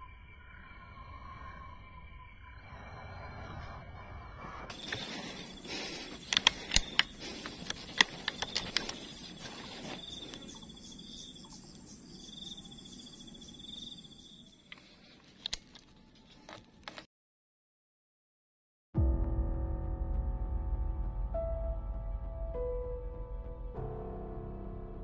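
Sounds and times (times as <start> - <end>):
insects trilling: 0.0 - 15.0
outdoor hum: 0.0 - 17.1
sharp clicks and knocks: 6.1 - 9.1.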